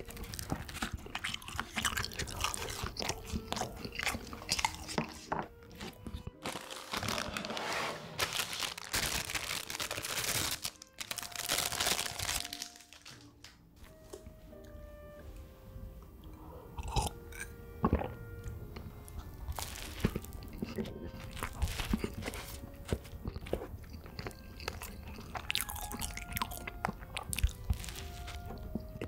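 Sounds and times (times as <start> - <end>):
crunchy chewing: 0.0 - 7.4, 16.2 - 29.0.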